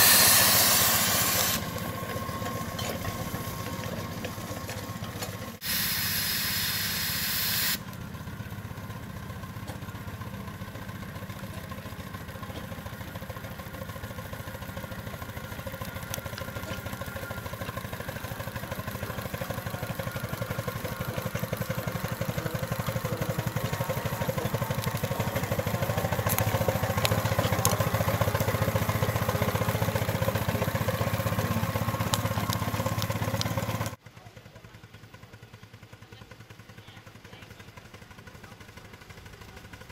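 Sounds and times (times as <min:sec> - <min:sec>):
steam hissing: 0:00.0 - 0:01.8, 0:05.6 - 0:07.8
steam engine chuffing: 0:00.0 - 0:39.9.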